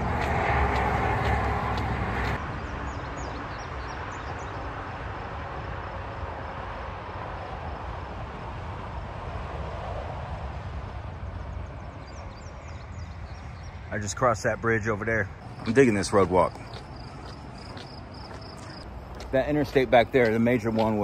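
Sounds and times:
vehicle passing close: 0:00.0 - 0:03.3
distant traffic hum: 0:00.0 - 0:21.0.

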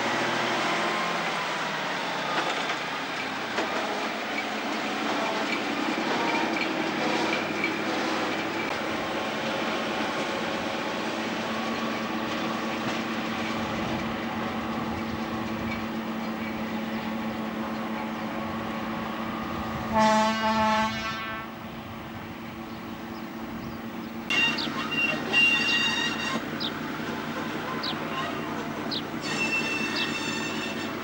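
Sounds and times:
railcar engine running: 0:00.0 - 0:31.0
horn blast: 0:19.8 - 0:21.7
high squeals: 0:24.3 - 0:26.7, 0:27.7 - 0:31.0.

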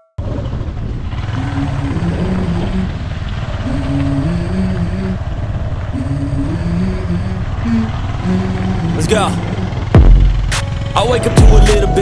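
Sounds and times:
wind rumble on microphone: 0:00.2 - 0:08.9
background music with low notes: 0:10.0 - 0:12.0.

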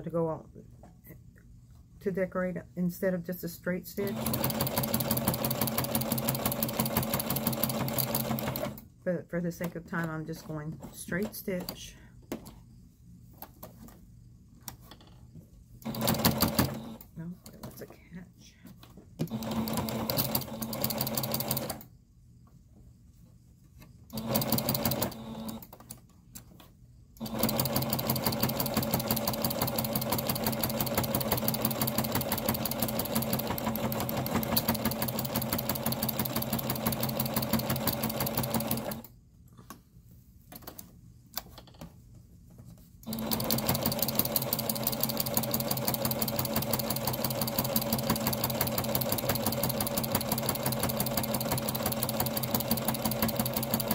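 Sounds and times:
sewing machine stitching hum: 0:04.0 - 0:08.9, 0:15.8 - 0:17.8, 0:19.2 - 0:21.9, 0:24.1 - 0:25.8, 0:27.2 - 0:39.1, 0:43.0 - 0:53.9.

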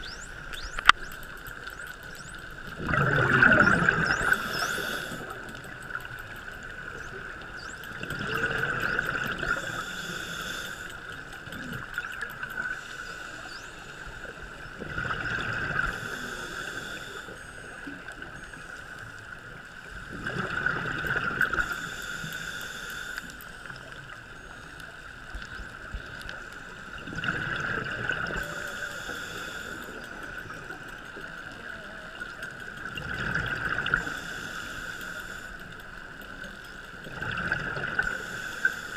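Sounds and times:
exhaled bubbles rushing: 0:02.7 - 0:04.9, 0:08.0 - 0:09.6, 0:14.8 - 0:16.0, 0:27.0 - 0:28.4
diver breathing through regulator: 0:03.5 - 0:06.0, 0:08.6 - 0:11.3, 0:12.6 - 0:14.4, 0:15.7 - 0:17.7, 0:21.5 - 0:23.8, 0:28.3 - 0:30.7, 0:33.6 - 0:35.9, 0:37.6 - 0:38.9.

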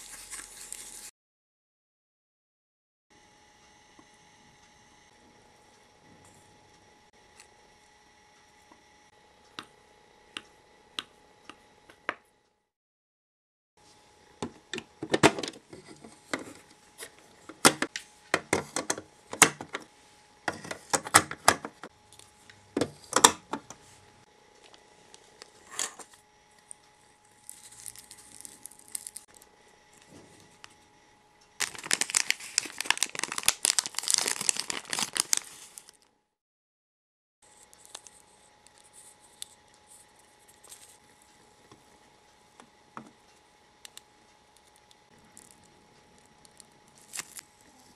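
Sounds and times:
plastic bag crinkling: 0:27.3 - 0:29.4, 0:31.6 - 0:36.1, 0:46.9 - 0:47.7.

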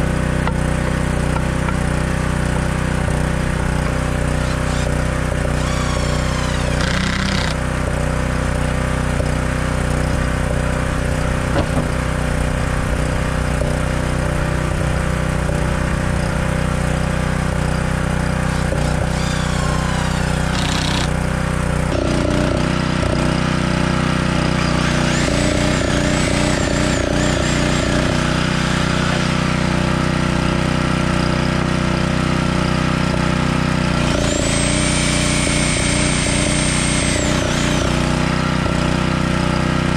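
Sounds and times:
generator engine running: 0:00.0 - 0:39.9
reciprocating saw whine: 0:03.1 - 0:07.6, 0:18.4 - 0:21.2, 0:24.4 - 0:30.7, 0:34.1 - 0:38.4
impact driver driving screws: 0:04.4 - 0:07.6, 0:18.4 - 0:21.2, 0:24.6 - 0:29.3.

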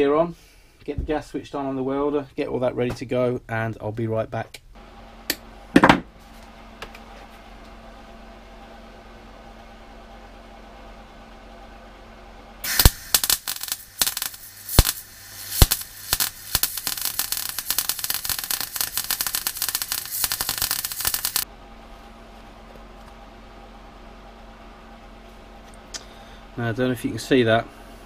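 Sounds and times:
low steady hum: 0:00.0 - 0:28.0
welding arc crackling and popping: 0:12.6 - 0:21.5.

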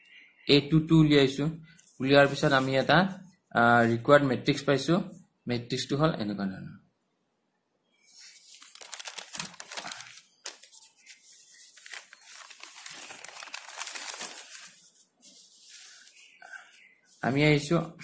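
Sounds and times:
paper rustling and crinkling: 0:08.0 - 0:17.4.

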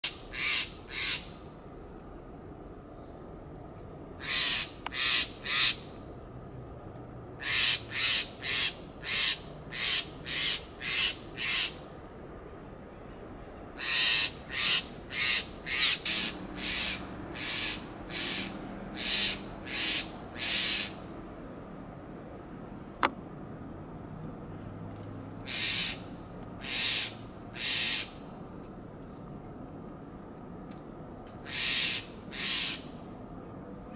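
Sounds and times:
jay harsh rasping calls: 0:00.0 - 0:01.3, 0:04.2 - 0:05.8, 0:07.4 - 0:11.8, 0:13.8 - 0:21.0, 0:25.4 - 0:28.2, 0:31.4 - 0:32.9.

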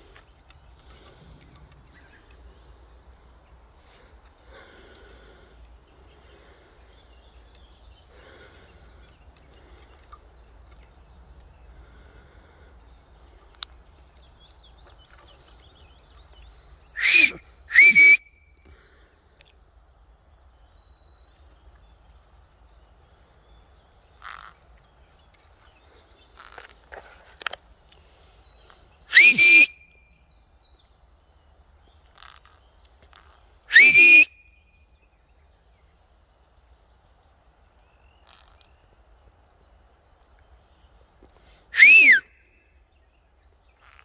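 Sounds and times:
soft chirps: 0:16.9 - 0:18.6, 0:29.1 - 0:30.2, 0:33.7 - 0:34.6
parrot shrill whistled calls: 0:17.0 - 0:18.3, 0:29.1 - 0:29.8, 0:33.7 - 0:34.4, 0:41.8 - 0:42.2.

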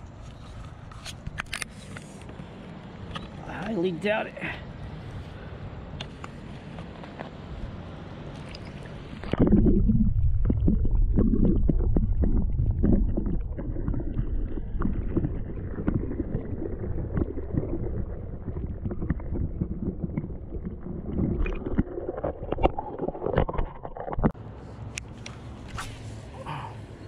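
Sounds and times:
underwater rumble of moving water: 0:08.4 - 0:24.4
small underwater knocks and crackles: 0:10.4 - 0:24.4.

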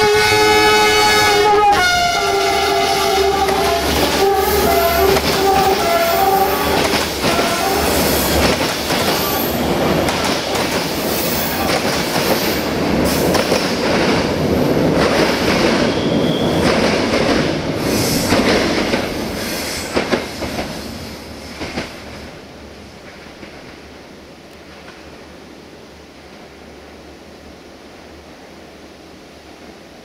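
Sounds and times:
locomotive horn blast: 0:00.0 - 0:08.5
train wheels rumbling and clattering: 0:00.0 - 0:25.4
wheel squeal: 0:15.8 - 0:16.6.

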